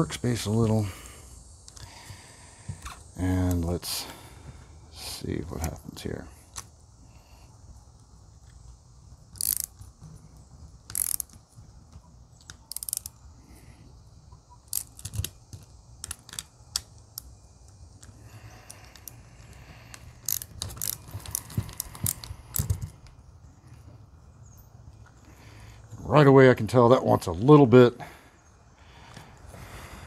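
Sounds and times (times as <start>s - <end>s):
socket ratchet clicking: 9.2s - 10.2s, 10.8s - 11.5s, 12.4s - 13.2s, 14.6s - 23.2s.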